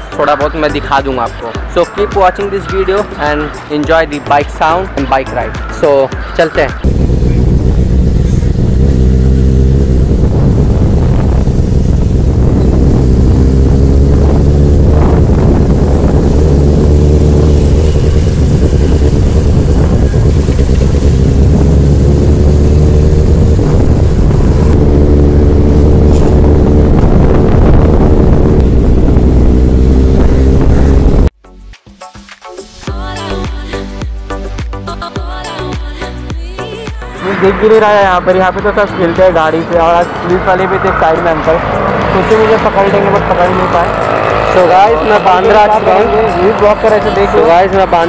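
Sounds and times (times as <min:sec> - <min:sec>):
motorcycle engine accelerating: 0:06.8 - 0:31.3, 0:37.1 - 0:48.0.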